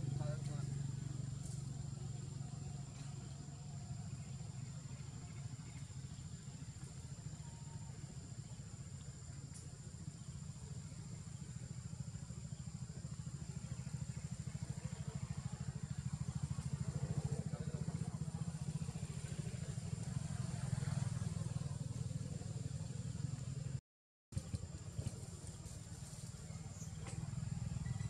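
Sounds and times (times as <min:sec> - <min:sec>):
small engine rumbling: 0:00.0 - 0:28.0.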